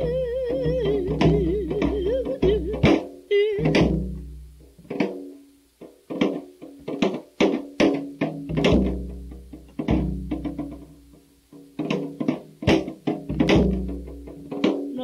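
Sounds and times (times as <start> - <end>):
plucked string notes: 0.0 - 15.0
deep drum strokes: 6.2 - 15.0.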